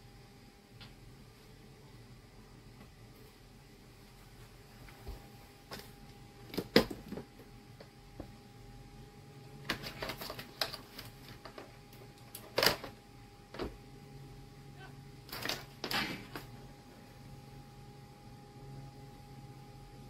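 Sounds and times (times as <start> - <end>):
faint steady hum: 0.0 - 20.0
wires clicking and rustling: 9.6 - 13.7, 15.3 - 16.6.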